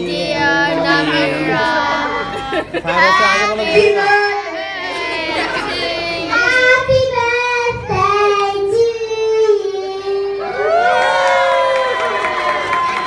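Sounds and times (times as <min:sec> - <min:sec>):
child singing into a microphone: 0:00.0 - 0:02.4, 0:03.0 - 0:10.6.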